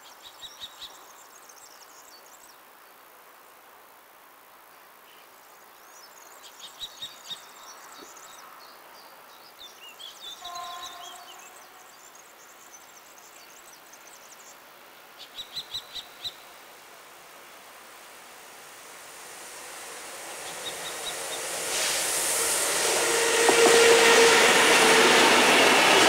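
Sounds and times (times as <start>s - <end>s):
faint outdoor noise: 0.0s - 26.0s.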